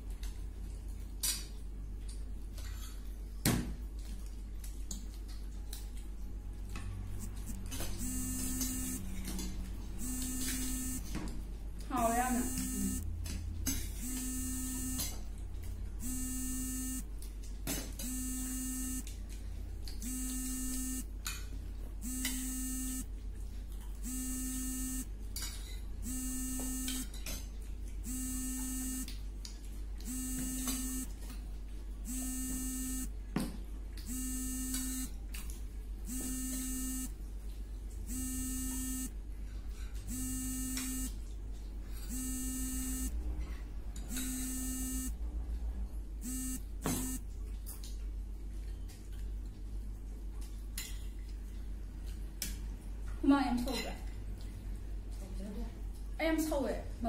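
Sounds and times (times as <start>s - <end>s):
electronic buzzer: 7.1s - 9.1s, 10.0s - 11.1s, 12.3s - 13.0s, 14.0s - 15.1s, 16.0s - 17.1s, 18.0s - 19.1s, 20.0s - 21.1s, 22.0s - 23.1s, 24.0s - 25.1s, 26.0s - 27.1s, 28.1s - 29.1s, 30.1s - 31.1s, 32.1s - 33.1s, 34.1s - 35.1s, 36.1s - 37.1s, 38.1s - 39.1s, 40.1s - 41.2s, 42.1s - 43.2s, 44.1s - 45.2s, 46.2s - 47.2s.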